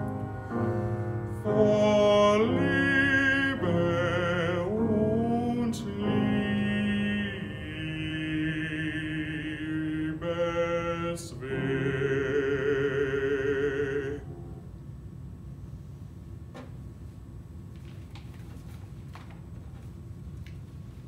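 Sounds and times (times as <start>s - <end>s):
male classical singing: 0.0s - 14.3s
piano accompaniment: 0.0s - 14.8s.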